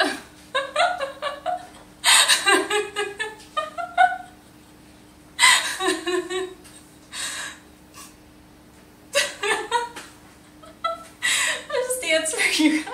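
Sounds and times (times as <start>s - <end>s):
woman laughing hard: 0.0s - 4.4s, 5.4s - 6.6s, 9.2s - 12.0s.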